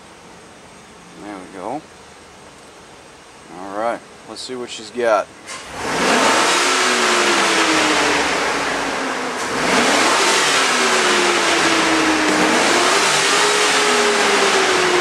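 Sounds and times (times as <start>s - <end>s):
truck engine revving: 5.5s - 15.0s.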